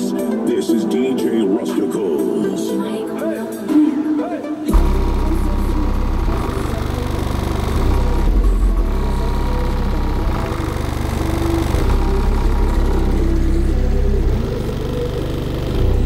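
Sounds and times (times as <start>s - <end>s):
loud music with deep bass: 0.0s - 16.0s
buzzing rattle: 4.8s - 16.0s.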